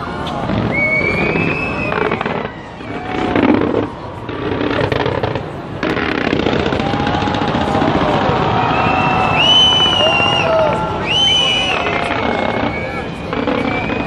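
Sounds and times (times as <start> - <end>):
fireworks crackling bangs: 0.0 - 14.0.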